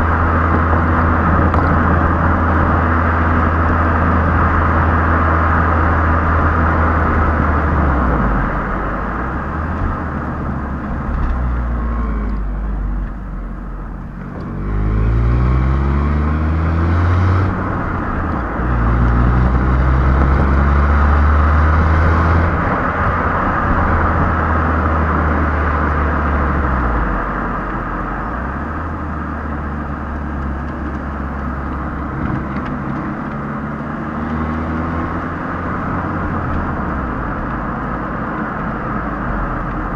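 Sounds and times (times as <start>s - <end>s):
car exhaust accelerating: 0.0s - 39.9s
tyre and wind noise: 0.0s - 39.9s.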